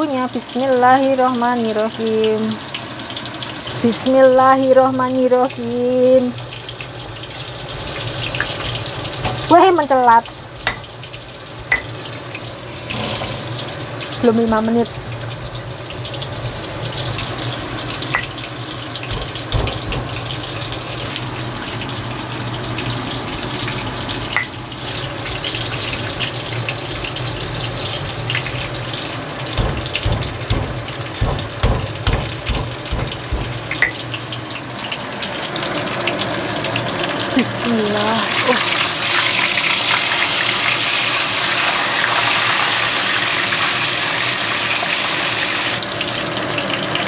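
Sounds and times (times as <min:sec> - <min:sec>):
pestle knocking: 0:19.1 - 0:20.4, 0:29.6 - 0:34.0.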